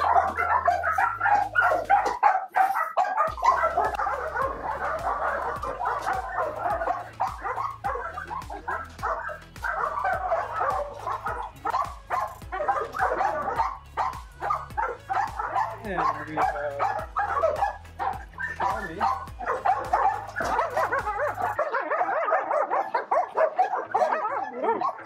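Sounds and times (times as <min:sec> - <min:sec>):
music with stepping bass line: 0:00.0 - 0:02.2, 0:03.1 - 0:21.6
dogs barking and yipping: 0:00.0 - 0:25.0.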